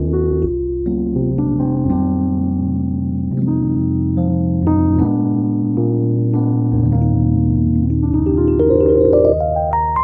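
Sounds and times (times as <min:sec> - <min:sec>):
keyboard music: 0:00.0 - 0:10.0.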